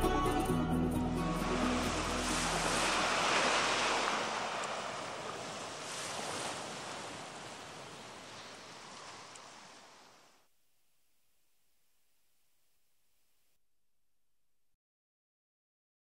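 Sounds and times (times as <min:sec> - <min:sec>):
surf-like noise: 0:01.1 - 0:10.4.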